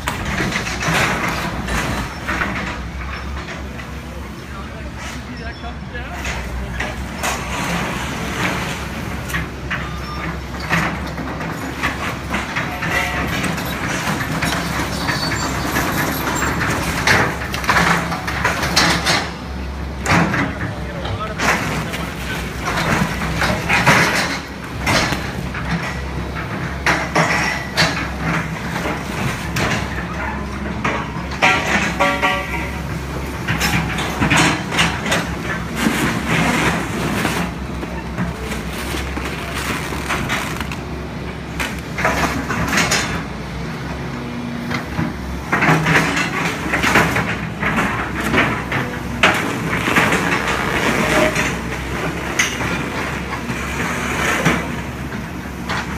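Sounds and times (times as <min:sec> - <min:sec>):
excavator diesel engine running: 0:00.0 - 0:55.9
metal frame crunching and scraping: 0:31.3 - 0:43.2, 0:45.8 - 0:55.9.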